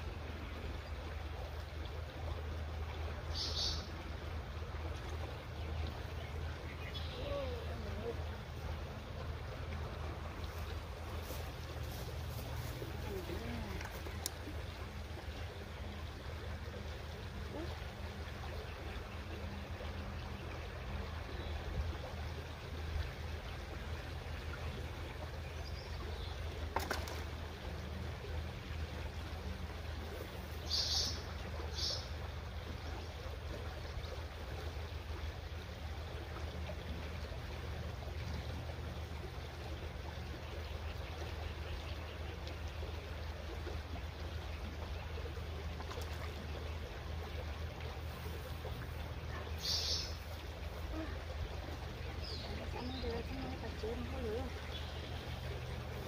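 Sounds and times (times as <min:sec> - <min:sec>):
creek trickling over rocks: 0:00.0 - 0:56.0
low steady rumble: 0:00.0 - 0:56.0
faint click: 0:13.8 - 0:14.4.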